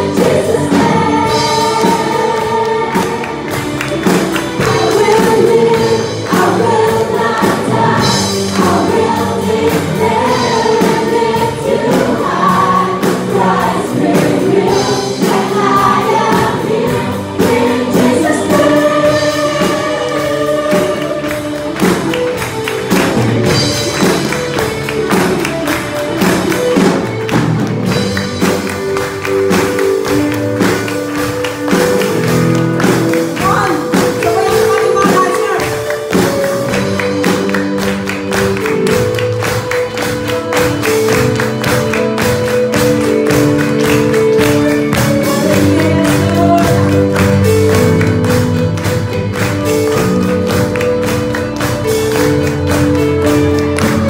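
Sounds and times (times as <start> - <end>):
group singing praise song: 0.0 - 22.4
backing music with steady beat: 0.0 - 54.0.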